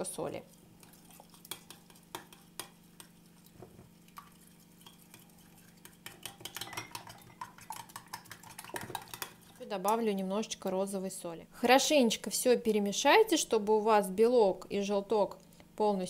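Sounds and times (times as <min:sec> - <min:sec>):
spoon clinking in glass bowl: 0:06.1 - 0:07.6.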